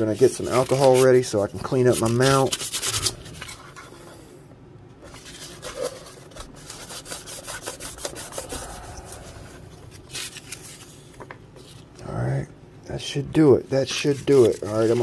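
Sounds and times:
cloth wiping and scrubbing: 0:05.1 - 0:11.9, 0:13.7 - 0:15.0.

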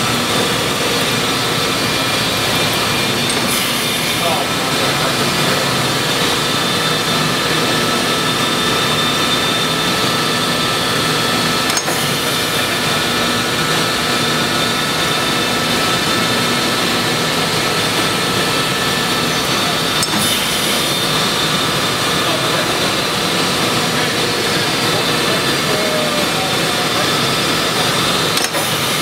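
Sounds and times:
grinding wheel on metal plate: 0:00.0 - 0:09.8.

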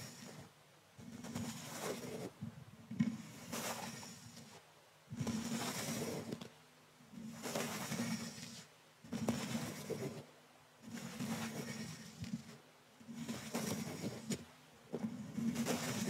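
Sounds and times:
brush swishing on microphone: 0:01.2 - 0:02.4, 0:03.2 - 0:04.6, 0:07.2 - 0:14.4, 0:15.2 - 0:16.0.

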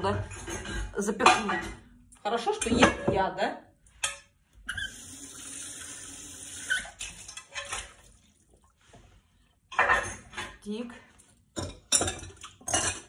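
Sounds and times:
tap water running into sink: 0:04.7 - 0:08.8
dishes clinking: 0:09.7 - 0:10.6, 0:11.6 - 0:13.0.

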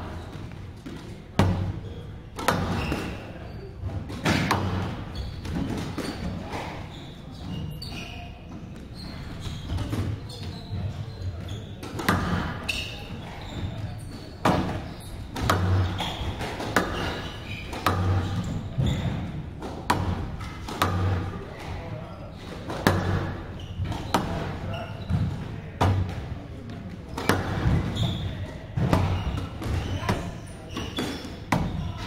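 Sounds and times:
squash ball knocking off walls: 0:14.4 - 0:26.3, 0:27.1 - 0:32.0.

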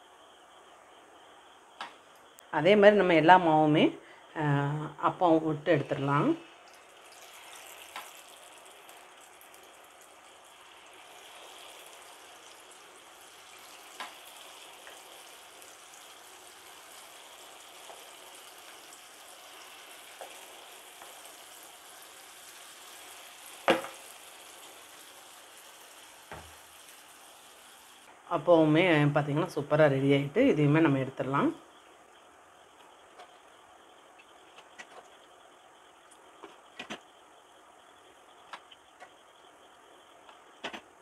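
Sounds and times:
batter sizzling in oil: 0:05.8 - 0:28.1.

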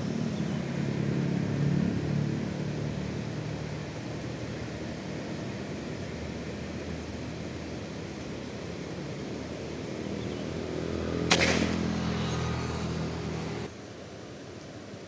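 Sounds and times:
air rifle shot: 0:11.3 - 0:11.9.

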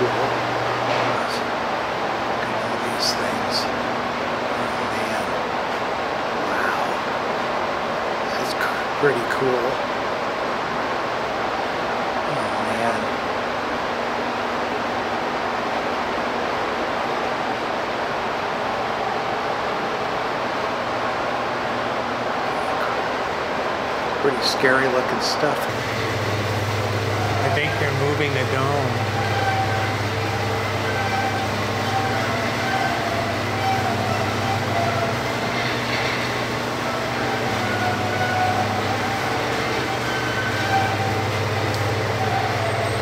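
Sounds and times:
constant low hum: 0:00.0 - 0:43.0
mechanical dome drive noise: 0:18.3 - 0:43.0.

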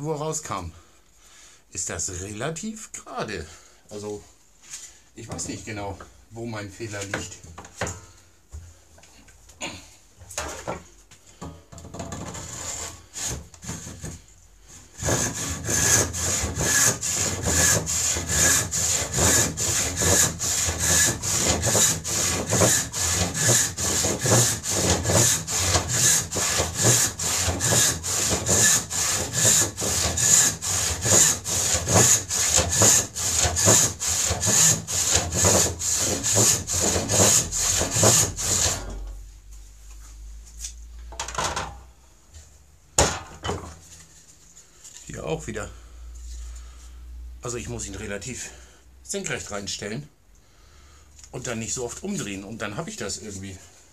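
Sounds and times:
hand saw cutting wood: 0:12.2 - 0:39.1.

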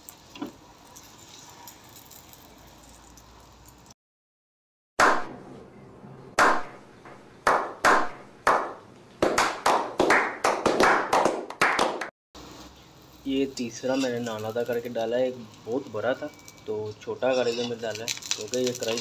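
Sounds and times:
hand clapping: 0:07.5 - 0:12.1.

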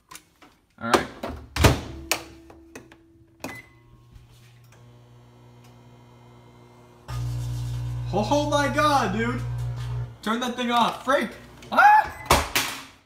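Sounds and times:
microwave oven humming: 0:03.5 - 0:12.3.

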